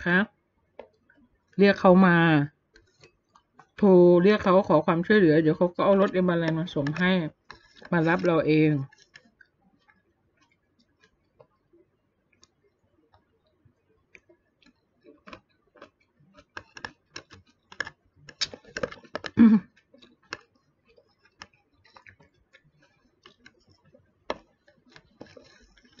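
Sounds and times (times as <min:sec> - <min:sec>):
fork clicking on plastic container: 0:14.2 - 0:19.4.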